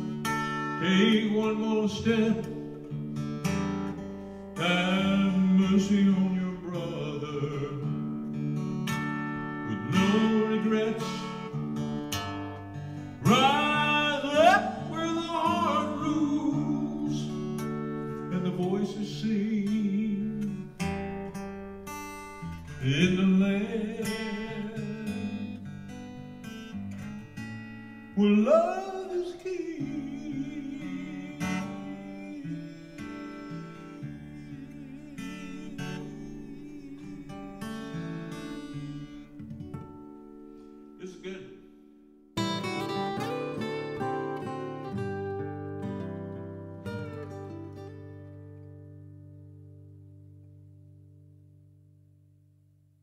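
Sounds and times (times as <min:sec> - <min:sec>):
acoustic guitar strumming: 0:00.0 - 0:52.2
man singing: 0:00.7 - 0:03.0, 0:04.6 - 0:08.0, 0:09.6 - 0:11.6, 0:13.2 - 0:21.0, 0:22.7 - 0:25.7, 0:28.1 - 0:39.5, 0:41.0 - 0:41.7.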